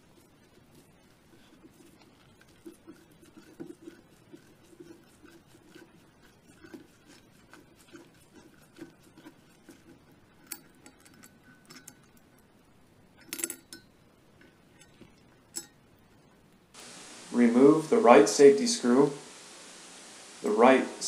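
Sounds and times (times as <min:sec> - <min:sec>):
metallic clinks: 0:13.2 - 0:14.0, 0:14.8 - 0:15.8.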